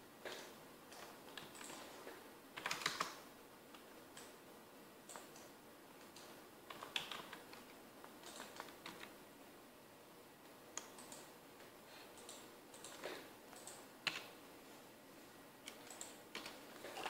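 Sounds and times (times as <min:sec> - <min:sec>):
keyboard and mouse clicks: 0:00.3 - 0:02.0, 0:02.6 - 0:03.2, 0:05.1 - 0:09.1, 0:10.8 - 0:11.3, 0:12.1 - 0:14.3, 0:15.6 - 0:17.0.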